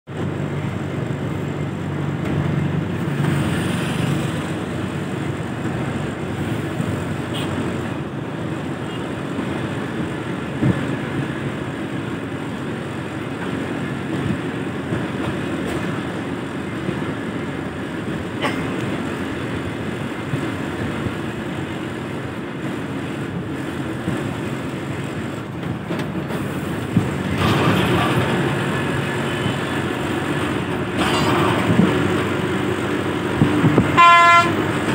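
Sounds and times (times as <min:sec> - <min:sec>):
bus engine and road noise: 0:00.0 - 0:34.9.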